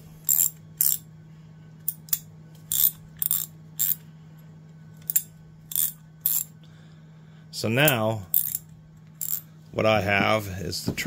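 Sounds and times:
hand ratchet clicking: 0.2 - 1.0, 1.9 - 4.0, 5.0 - 6.5, 7.9 - 8.6, 9.2 - 9.4.

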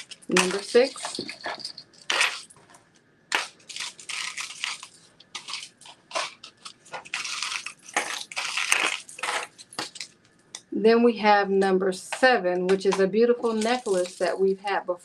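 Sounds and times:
jewelry clicking and clinking: 0.0 - 10.2
crinkly rustling: 0.0 - 10.4, 12.9 - 14.5.

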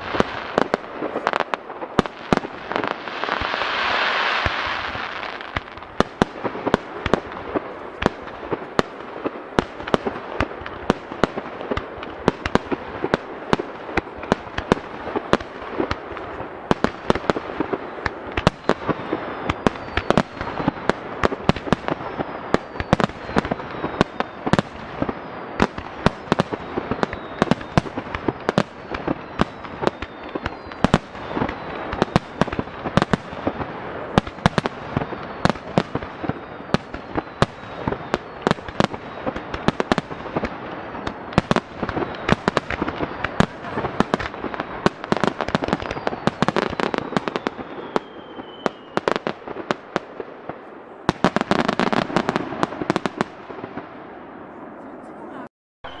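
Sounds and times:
fireworks bursting: 0.0 - 56.0
faint falling whistles: 18.6 - 20.8, 26.2 - 32.4, 45.6 - 49.1.

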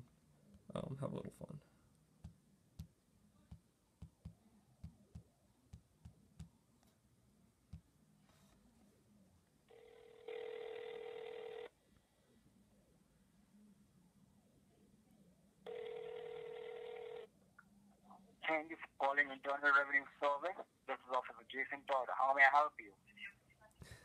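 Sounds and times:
fingertip taps on touchscreen: 3.5 - 6.5
phone ringback tone: 9.7 - 11.7, 15.7 - 17.3.

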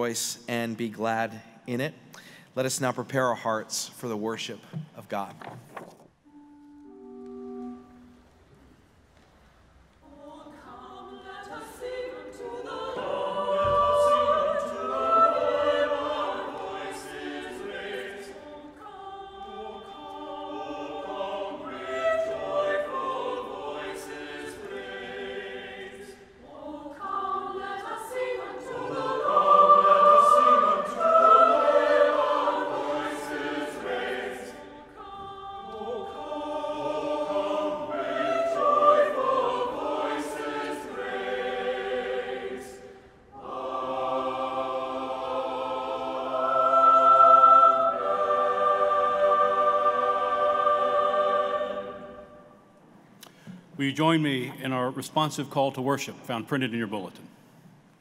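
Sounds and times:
mixed choir singing: 10.0 - 52.8.

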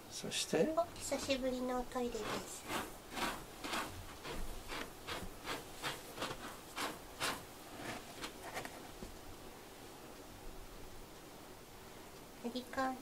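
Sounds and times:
cat scratching in litter: 1.0 - 9.0.

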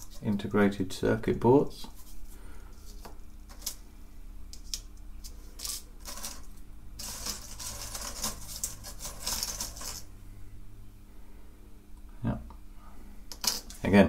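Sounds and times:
small components clicking and rattling: 4.5 - 10.1, 13.3 - 13.8.

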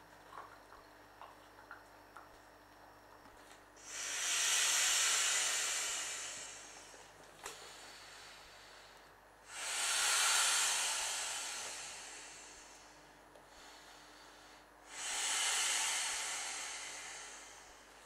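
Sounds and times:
breath blown into valve: 3.8 - 8.7, 9.4 - 14.0, 14.8 - 17.9.

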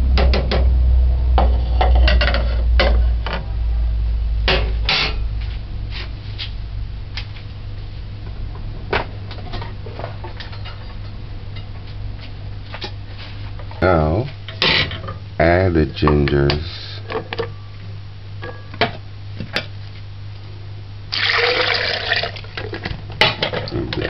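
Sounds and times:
steady low hum: 0.0 - 24.0
loud knock: 0.1 - 0.8.

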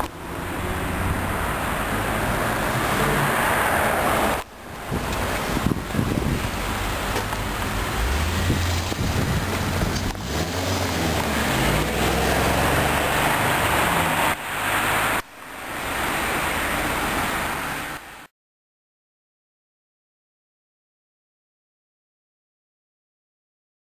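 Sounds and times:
car engine accelerating: 0.0 - 15.2
road noise rushing: 0.0 - 18.3
wind noise on microphone: 4.0 - 14.4.

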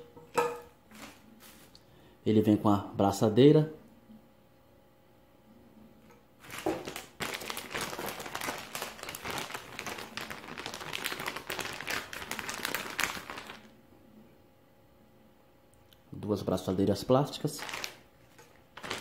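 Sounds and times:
plastic bag crinkling: 6.4 - 13.7, 17.4 - 19.0.

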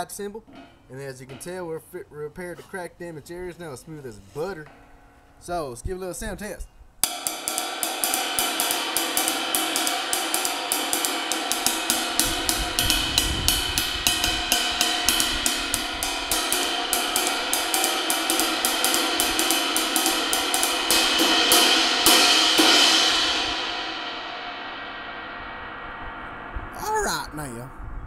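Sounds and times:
ride cymbal struck with drumstick: 7.0 - 26.6.

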